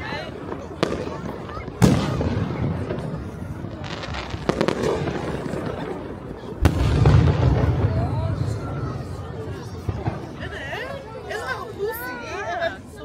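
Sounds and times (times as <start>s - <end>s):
sharp firework bangs: 0.7s - 3.2s, 3.8s - 10.5s
heavy rumbling firework boom: 0.8s - 10.6s.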